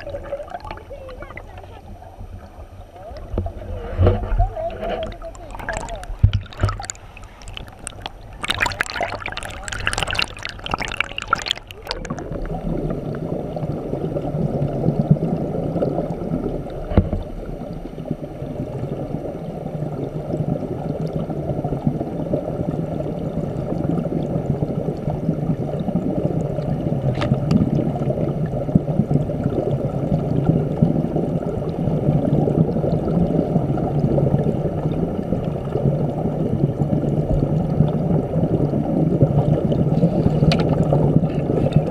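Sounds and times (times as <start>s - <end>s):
water splashing: 0.0s - 24.4s
muffled underwater stream rush: 0.0s - 41.9s.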